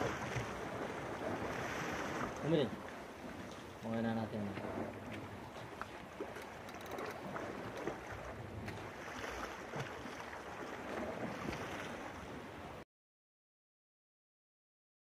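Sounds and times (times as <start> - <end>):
waves: 0.0 - 12.9
faint clicks: 5.8 - 7.9.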